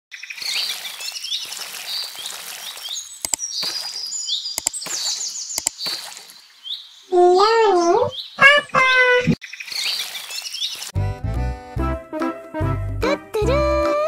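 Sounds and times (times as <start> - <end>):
songbirds chirping: 0.1 - 11.0
sharp clicks: 3.2 - 3.5, 4.6 - 5.0, 5.6 - 5.8.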